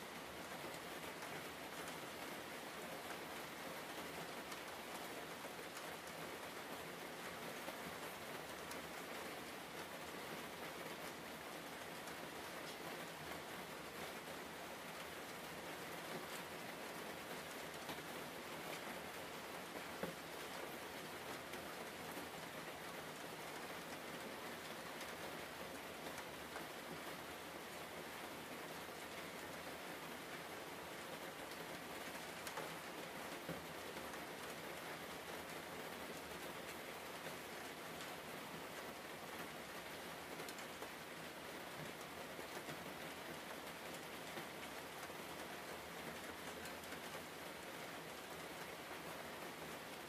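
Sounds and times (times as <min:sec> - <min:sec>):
steady rain hiss: 0:00.0 - 0:50.0
raindrop ticks: 0:04.4 - 0:06.5, 0:08.5 - 0:09.0, 0:31.4 - 0:34.7, 0:40.3 - 0:41.1.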